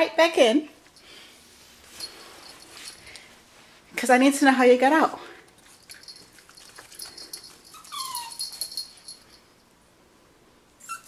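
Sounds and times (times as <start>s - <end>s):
light rustling: 0.9s - 4.0s
puppy whining: 6.9s - 9.1s, 10.8s - 11.0s.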